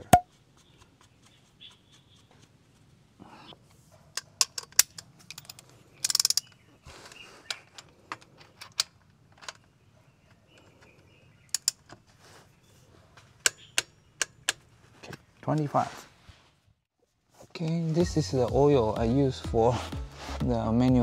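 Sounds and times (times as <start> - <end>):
ratchet wrench clicking: 6.0 - 6.4.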